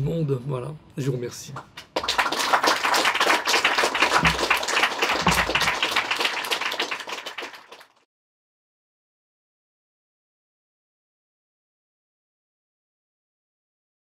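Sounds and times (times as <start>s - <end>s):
audience applauding: 1.8s - 8.0s.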